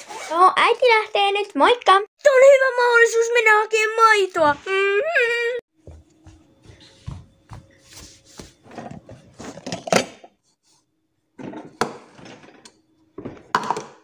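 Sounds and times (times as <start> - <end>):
dishes and plastic cup clattering: 8.8 - 10.3, 11.4 - 14.0.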